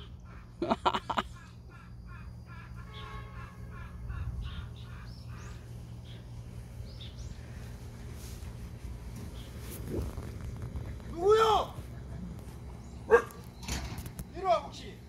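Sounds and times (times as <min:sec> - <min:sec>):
high chirping animal calls: 0:00.0 - 0:07.3.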